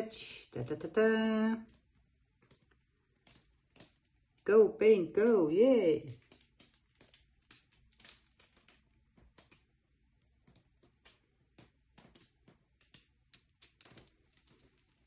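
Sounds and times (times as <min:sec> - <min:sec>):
faint small clicks and ticks: 0:01.6 - 0:04.4, 0:06.1 - 0:15.0.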